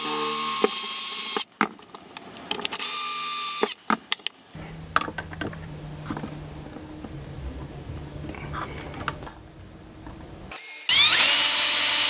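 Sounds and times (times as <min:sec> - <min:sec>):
cordless drill drilling plastic: 0:10.9 - 0:12.0.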